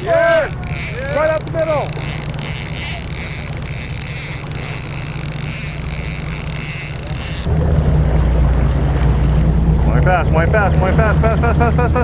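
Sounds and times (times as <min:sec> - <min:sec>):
boat engine running: 0:00.0 - 0:12.0
rumble of wind and water: 0:00.0 - 0:12.0.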